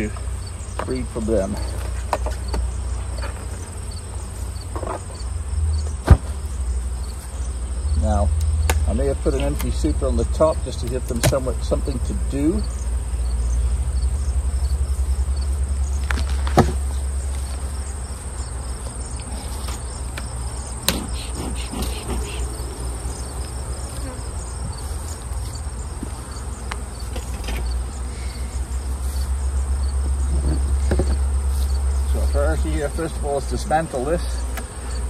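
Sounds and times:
honeybees buzzing: 0:00.0 - 0:35.0
wooden knocks of hive boxes: 0:01.6 - 0:03.8, 0:04.7 - 0:05.2, 0:05.8 - 0:06.5, 0:10.8 - 0:11.8, 0:16.0 - 0:17.0, 0:18.7 - 0:22.5, 0:23.1 - 0:28.0, 0:29.9 - 0:31.4
low steady rumble: 0:11.5 - 0:19.3
high-pitched insect trill: 0:11.6 - 0:35.0.

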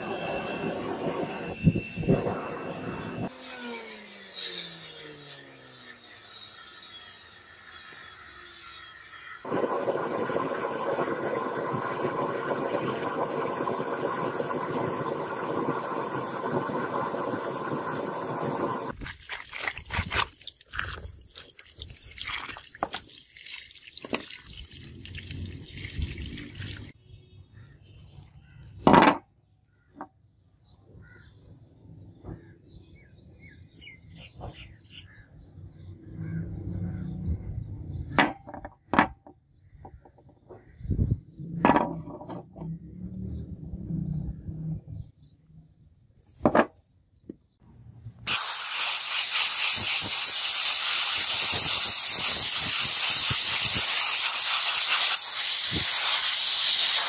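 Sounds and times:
water splashing: 0:18.9 - 0:27.0.

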